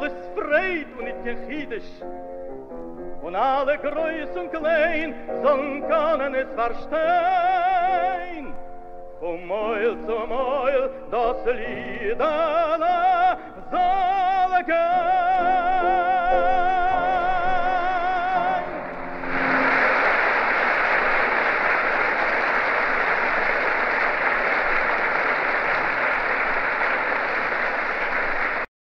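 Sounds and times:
man singing with vibrato: 0.0s - 2.0s, 3.2s - 8.6s, 9.2s - 19.2s
piano: 0.0s - 28.7s
audience applause: 18.3s - 28.7s.

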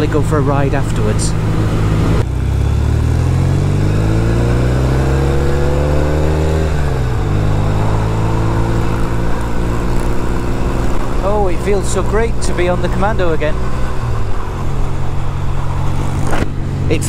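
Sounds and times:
motorcycle engine accelerating: 0.0s - 17.0s.

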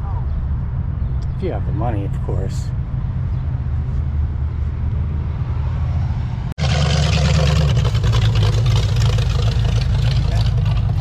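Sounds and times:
car engine driving past: 2.7s - 11.0s.

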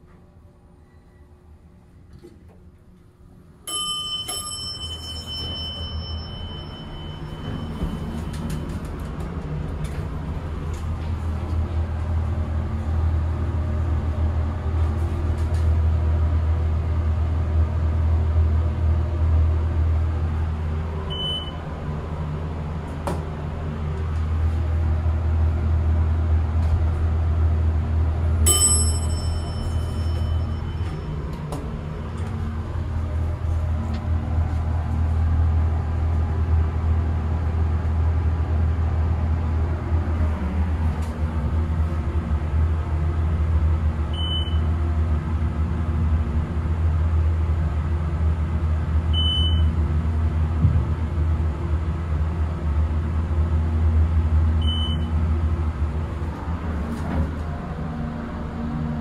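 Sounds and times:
loud steady low hum: 0.0s - 59.0s
elevator chime: 3.6s - 9.0s, 21.1s - 21.7s, 28.4s - 32.4s, 44.1s - 44.7s, 49.1s - 49.8s, 54.6s - 55.2s
short beep: 3.7s - 8.6s, 21.1s - 21.6s, 44.2s - 44.7s, 49.2s - 49.7s, 54.6s - 55.1s.

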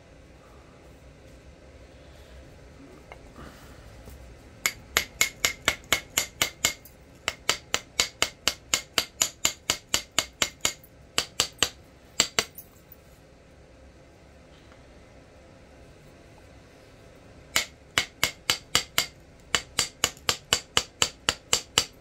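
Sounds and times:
knapping tool tapping stone: 4.7s - 12.6s, 17.6s - 22.0s.

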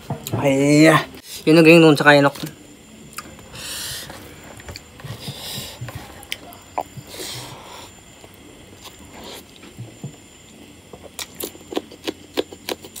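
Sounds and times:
wet chewing and mouth clicks: 10.9s - 13.0s.

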